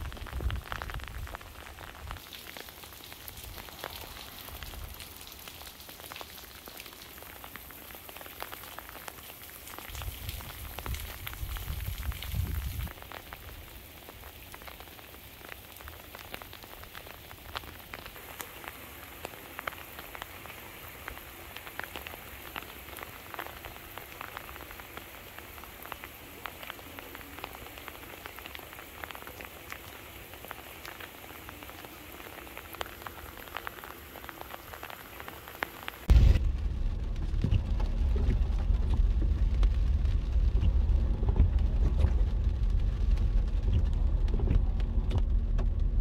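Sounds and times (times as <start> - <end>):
freezing rain ticking on ice: 0.0 - 46.0
low rumble: 36.1 - 46.0.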